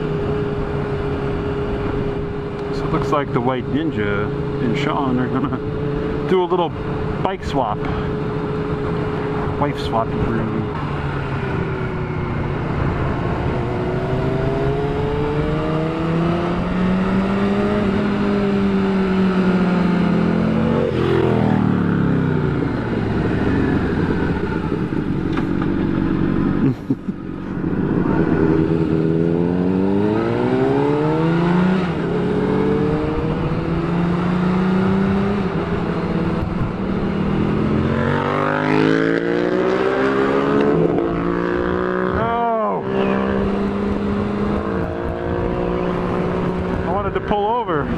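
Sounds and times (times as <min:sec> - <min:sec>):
motorcycle engine accelerating: 0:00.0 - 0:47.9
wind noise: 0:20.5 - 0:47.3.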